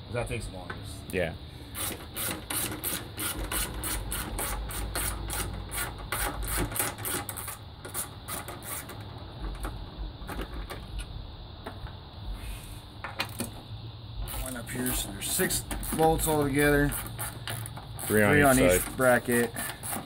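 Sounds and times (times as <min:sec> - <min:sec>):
ratchet wrench clicking: 0:01.7 - 0:09.1, 0:14.3 - 0:20.0.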